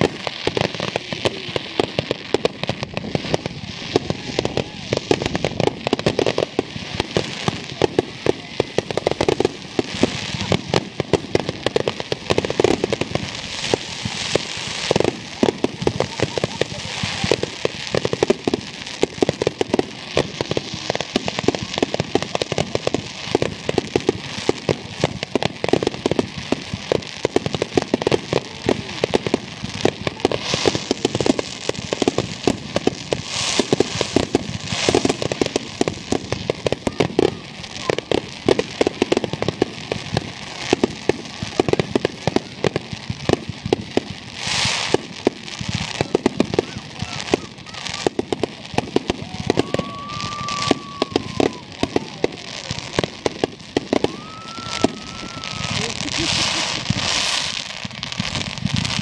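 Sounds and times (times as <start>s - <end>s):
fireworks bursting and crackling: 0.0s - 59.0s.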